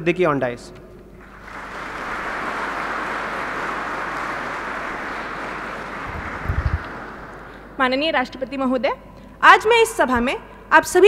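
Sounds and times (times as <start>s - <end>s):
audience applauding: 1.2s - 7.8s.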